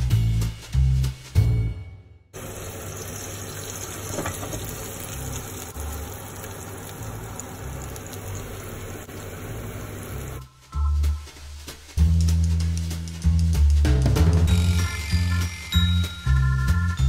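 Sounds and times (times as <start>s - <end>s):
hot oil sizzling in pan: 2.4s - 10.5s.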